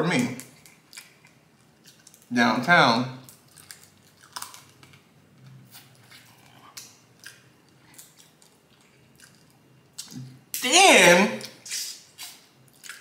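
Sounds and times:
chewing: 0:00.4 - 0:02.3, 0:03.2 - 0:10.3, 0:11.8 - 0:13.0
crab shell cracking: 0:03.2 - 0:05.1.

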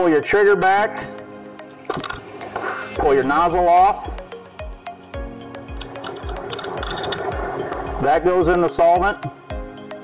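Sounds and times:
background music: 0:00.0 - 0:10.0.

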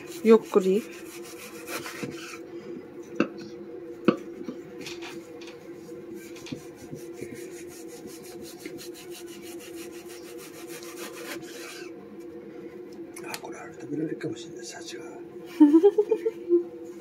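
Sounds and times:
knife rasping through frozen meat: 0:00.0 - 0:02.4, 0:06.2 - 0:11.9.

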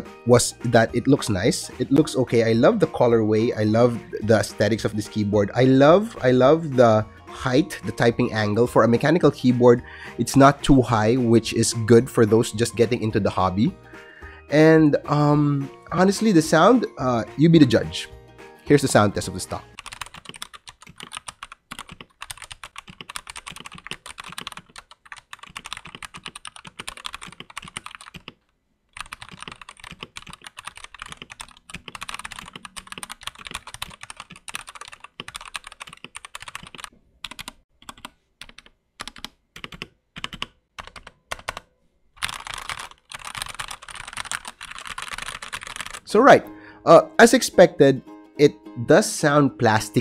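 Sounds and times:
mechanical keyboard typing: 0:19.8 - 0:28.4, 0:29.0 - 0:46.1.

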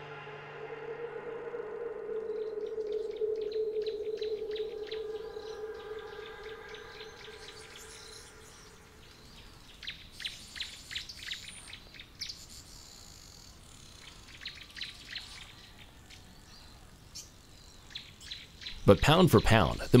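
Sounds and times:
low held tone: 0:00.0 - 0:09.7
high insect hum: 0:00.0 - 0:15.6
birds chirping: 0:00.0 - 0:20.0.

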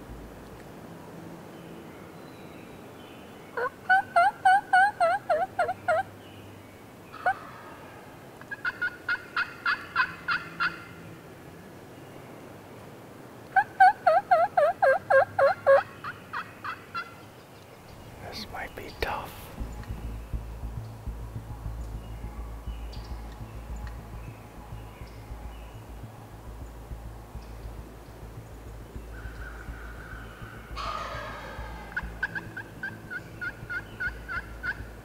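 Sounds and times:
turkey yelping: 0:03.6 - 0:06.1, 0:07.1 - 0:07.6, 0:08.5 - 0:10.9, 0:13.6 - 0:17.2, 0:29.1 - 0:34.8.

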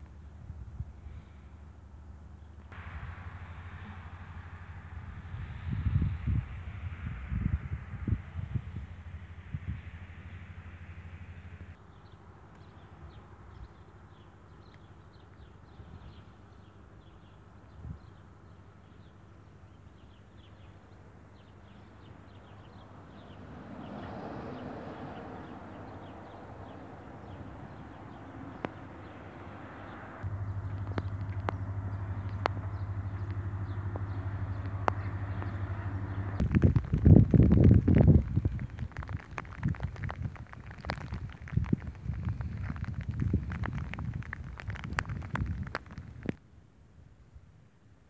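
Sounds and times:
steady low rumble: 0:00.0 - 0:12.1, 0:19.9 - 0:46.4
small birds chirping: 0:11.3 - 0:46.3.

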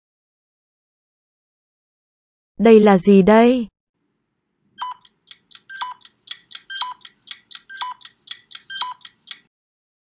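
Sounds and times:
louder beep-like tick: 0:04.8 - 0:09.4
quick timer ticks: 0:04.8 - 0:09.5.

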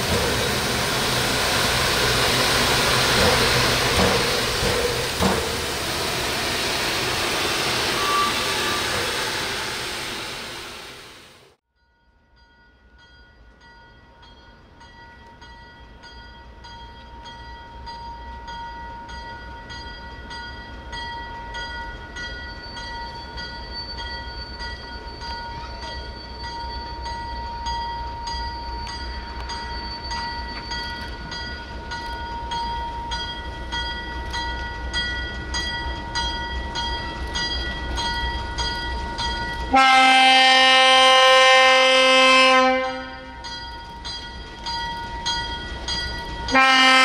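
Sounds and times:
diesel locomotive rumble: 0:00.0 - 0:11.6
bell ringing: 0:43.3 - 0:46.9.

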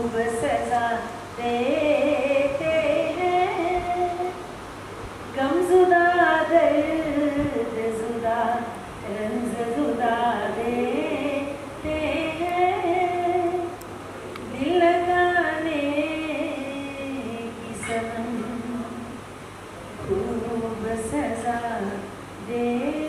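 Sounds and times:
woman singing unaccompanied: 0:00.0 - 0:04.6, 0:05.3 - 0:19.3, 0:19.9 - 0:23.0.

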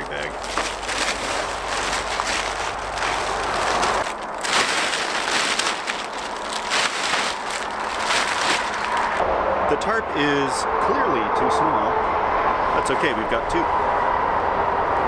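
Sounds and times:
plastic tarp crinkling: 0:00.0 - 0:09.2.

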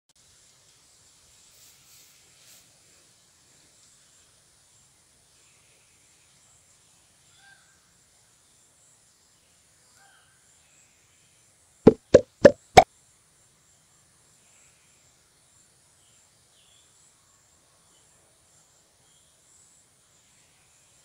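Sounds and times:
short sharp pops: 0:11.9 - 0:12.8.

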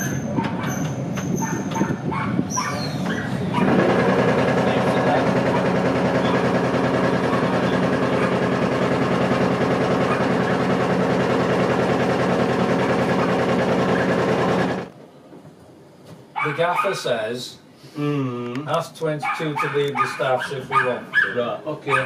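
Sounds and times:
tram running hum and rattle: 0:00.0 - 0:02.3.

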